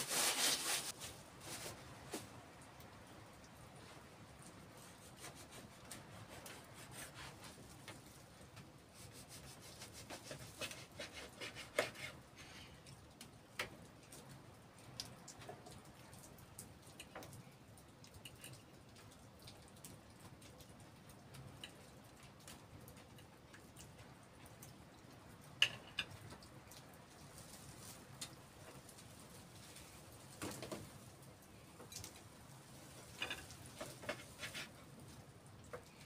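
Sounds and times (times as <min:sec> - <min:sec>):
knife scraping on wooden board: 0:00.0 - 0:00.9.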